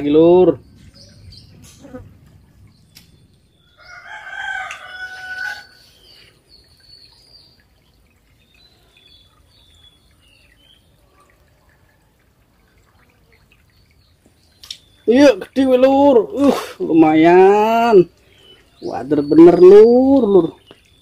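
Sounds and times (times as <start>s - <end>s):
rooster crowing: 3.7s - 5.9s.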